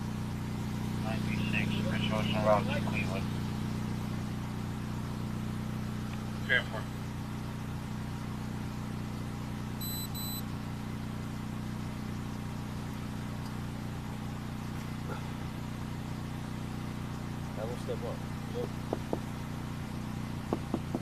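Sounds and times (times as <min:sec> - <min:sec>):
car engine idling: 0:00.0 - 0:21.0
short high camera beeps: 0:09.8 - 0:10.5.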